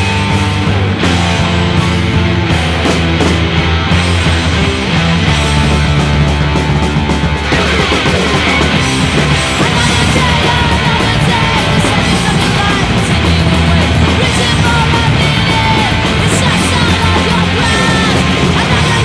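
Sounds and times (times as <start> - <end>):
distorted electric guitars: 0.0 - 19.0
drums: 0.0 - 19.0
loud punk song: 0.0 - 19.0
shouted vocals: 8.4 - 19.0.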